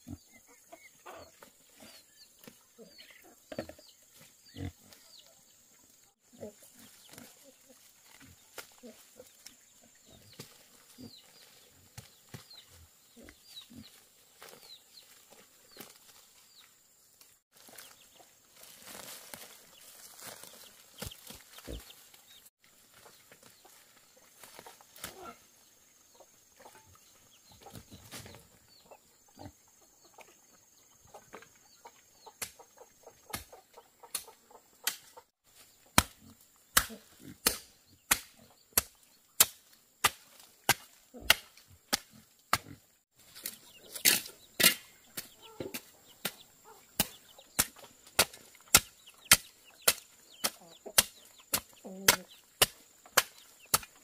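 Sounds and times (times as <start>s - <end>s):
chickens clucking: 0.0s - 16.7s, 19.7s - 35.7s, 43.4s - 54.0s
sharp chopping strokes: 35.9s - 42.7s, 44.0s - 54.0s.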